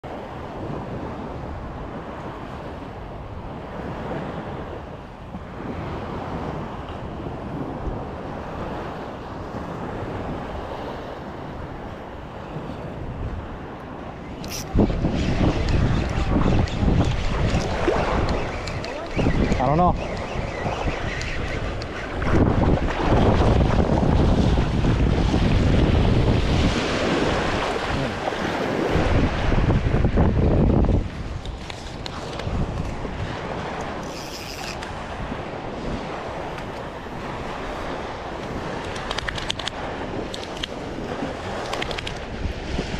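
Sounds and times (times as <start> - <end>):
surf washing in shallows: 0.0 - 42.9
wind buffeting microphone: 0.0 - 42.9
water lapping: 14.4 - 29.6.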